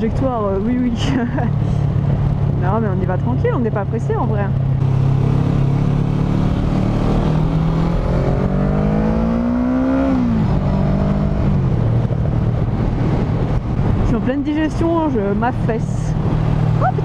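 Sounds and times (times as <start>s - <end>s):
wind rush on microphone: 0.0s - 17.0s
motorcycle engine revving: 1.6s - 14.1s.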